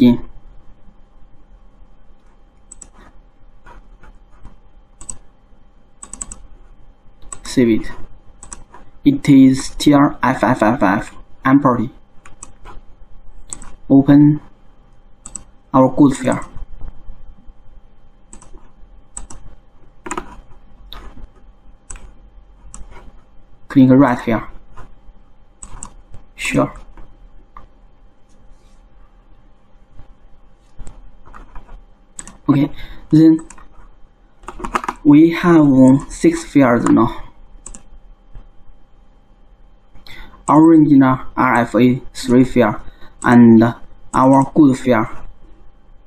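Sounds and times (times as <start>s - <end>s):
computer mouse and key clicks: 2.2s - 5.3s, 6.0s - 6.5s, 7.2s - 7.6s, 8.4s - 8.9s, 12.2s - 12.8s, 13.4s - 13.8s, 15.2s - 15.5s, 18.3s - 23.1s, 25.6s - 26.2s, 30.7s - 32.5s, 33.4s - 35.0s, 37.6s - 37.9s.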